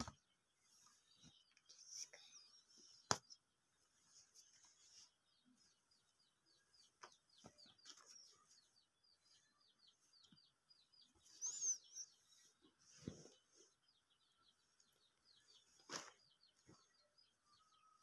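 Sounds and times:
short high bird chirps: 0:11.2 - 0:12.3.

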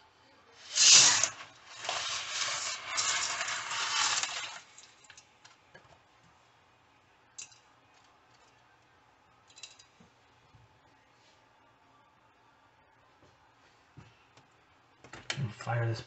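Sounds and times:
spaghetti sliding into metal pot: 0:00.6 - 0:04.7.

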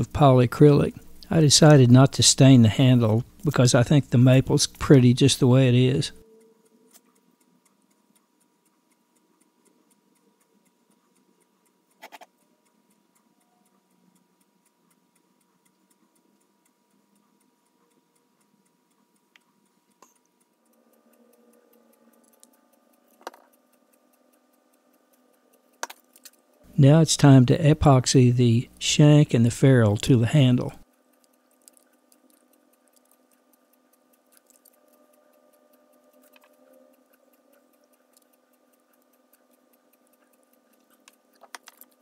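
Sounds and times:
faint steady tone: 0:00.0 - 0:42.0
fine ticking: 0:00.1 - 0:42.0
soft clicks: 0:18.9 - 0:26.7, 0:29.9 - 0:42.0.

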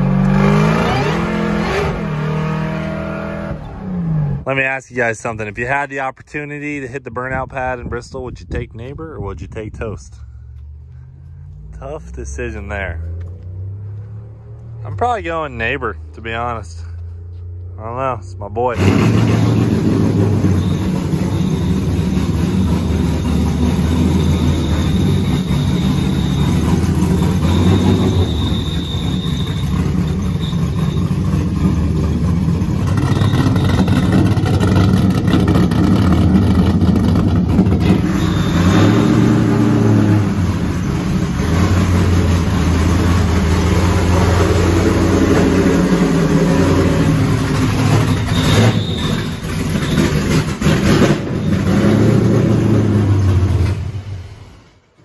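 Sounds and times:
race truck engine revving: 0:00.0 - 0:04.5, 0:18.7 - 0:54.5.

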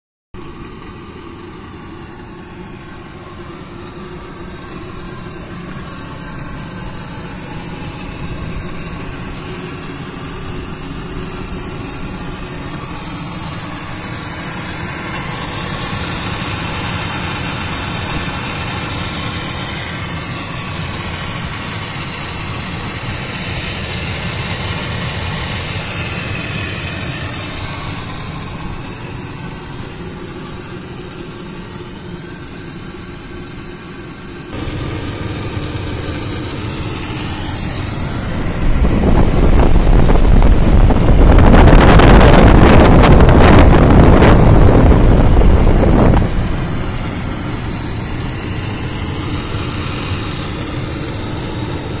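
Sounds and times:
cooling tower fan and water: 0:34.6 - 0:52.0.

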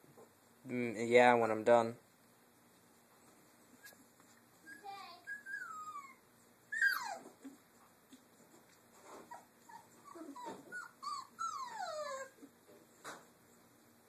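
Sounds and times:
puppies whining: 0:04.6 - 0:07.6, 0:09.2 - 0:12.8.

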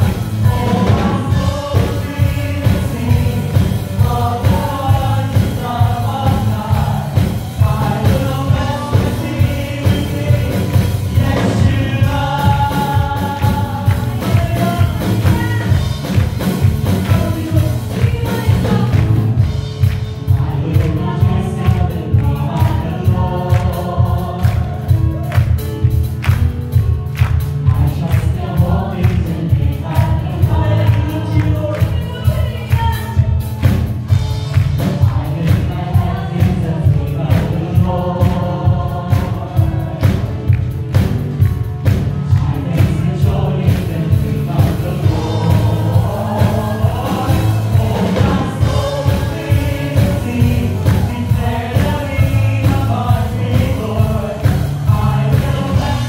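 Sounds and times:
gospel choir singing: 0:00.0 - 0:56.0
instrumental backing with heavy bass: 0:00.0 - 0:56.0.

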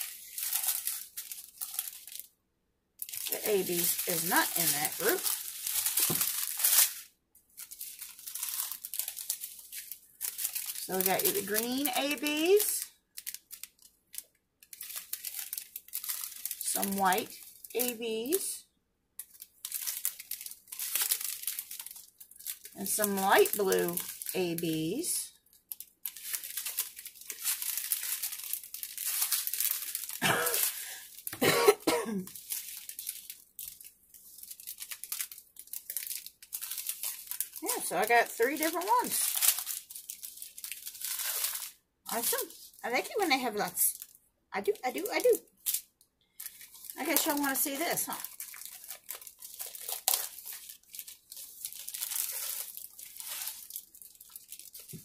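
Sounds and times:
plastic bags crinkling: 0:00.0 - 0:02.3, 0:03.0 - 0:18.5, 0:19.2 - 0:55.0
person coughing: 0:30.2 - 0:30.8, 0:31.4 - 0:32.3.

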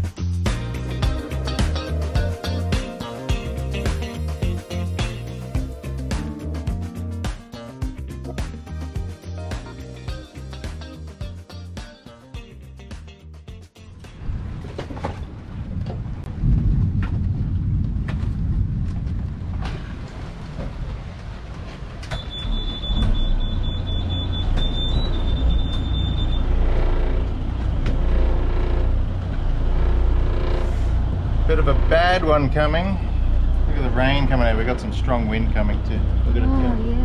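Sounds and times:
wind buffeting microphone: 0:14.0 - 0:23.1.

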